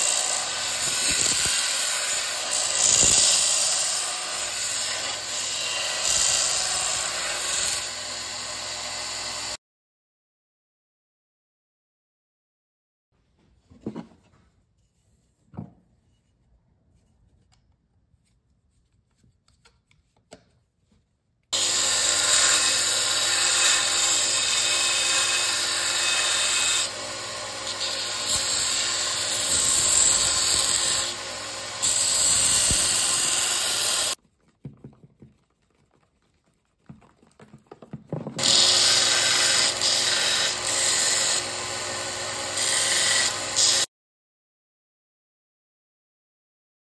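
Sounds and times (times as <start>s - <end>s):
belt sander grinding wood: 0.0s - 9.6s, 21.6s - 34.2s, 38.1s - 43.9s.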